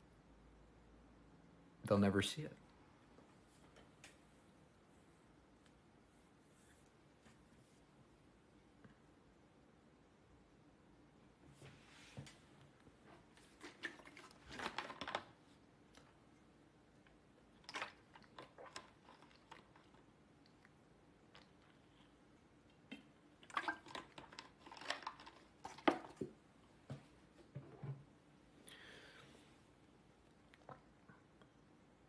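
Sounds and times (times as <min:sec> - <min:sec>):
crunchy clicks and rustling: 0:13.6 - 0:16.1, 0:17.6 - 0:20.6, 0:23.6 - 0:26.2.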